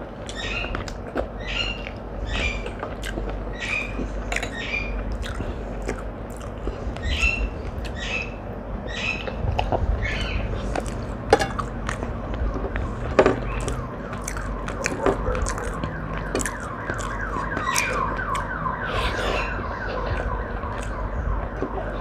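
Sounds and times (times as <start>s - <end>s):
eating crunches and clicks: 0.1s - 8.4s, 9.0s - 22.0s
electronic siren falling sweeps: 12.8s - 22.0s.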